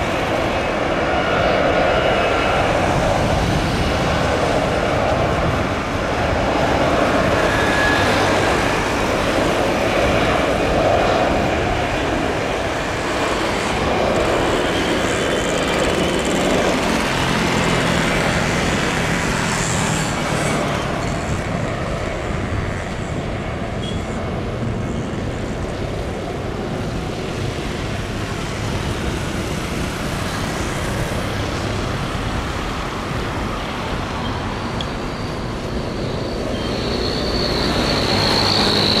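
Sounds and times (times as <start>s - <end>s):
distant jet engines roaring: 0.0s - 39.0s
high whine: 33.8s - 39.0s.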